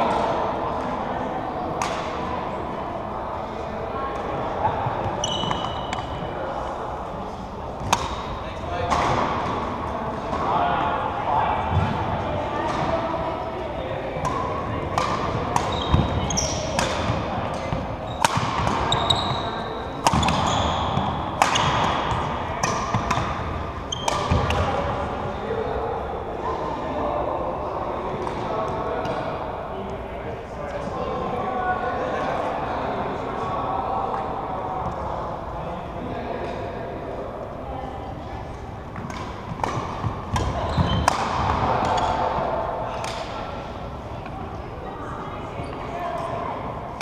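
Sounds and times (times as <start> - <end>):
rackets hitting shuttlecock: 1.8 - 2.3, 7.8 - 9.6, 14.2 - 24.9, 39.0 - 44.4
shoes squeaking on wooden floor: 5.1 - 5.9.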